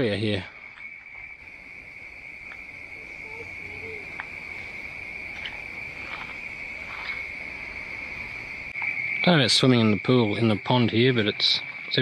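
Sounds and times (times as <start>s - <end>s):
insect chorus trilling: 0.0s - 12.0s
faint clicks: 4.1s - 4.4s.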